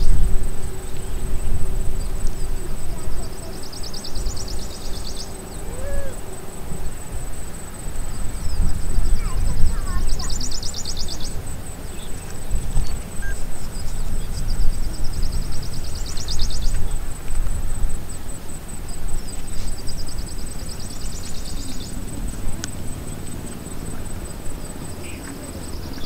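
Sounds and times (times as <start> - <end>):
fast-pulsed insect trill: 0.0 - 26.0
high-pitched insect buzz: 0.0 - 26.0.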